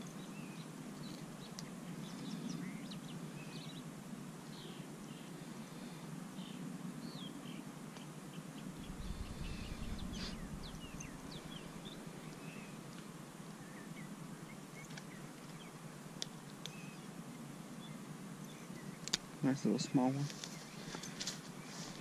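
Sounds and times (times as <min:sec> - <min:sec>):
birds chirping: 0:00.0 - 0:22.0
outdoor hiss: 0:07.4 - 0:22.0
low rumble: 0:08.7 - 0:12.1.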